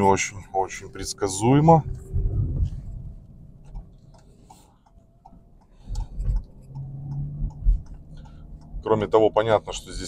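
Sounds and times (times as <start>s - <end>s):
car cabin road rumble and thumps: 0.0s - 10.0s
light ticking: 3.6s - 10.0s.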